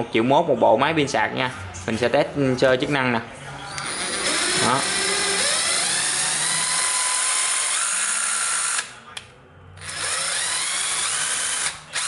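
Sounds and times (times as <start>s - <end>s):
impact driver motor whining: 3.7s - 8.9s, 9.8s - 12.0s.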